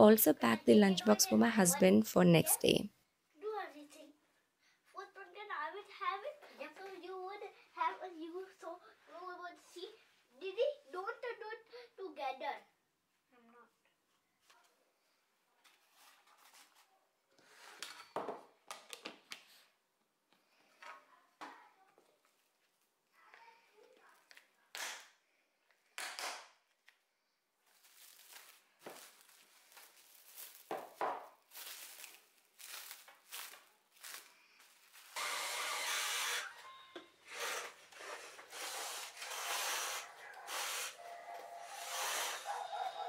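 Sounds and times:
cling wrap crinkling: 27.6 - 35.2.

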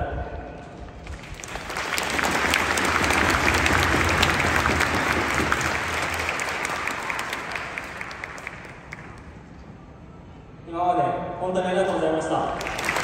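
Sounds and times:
stadium crowd applauding: 1.0 - 9.6, 12.5 - 13.0.

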